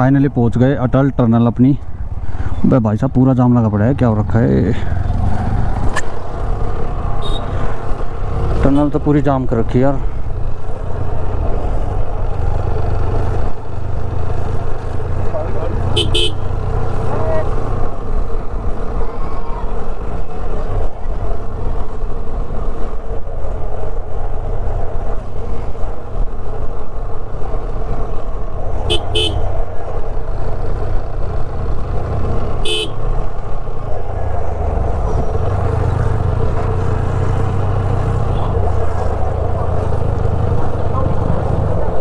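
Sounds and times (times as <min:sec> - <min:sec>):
motorcycle engine rumbling: 0:00.0 - 0:42.0
vehicle horn toots: 0:07.2 - 0:07.6, 0:15.9 - 0:16.5, 0:28.8 - 0:29.5, 0:32.6 - 0:33.0.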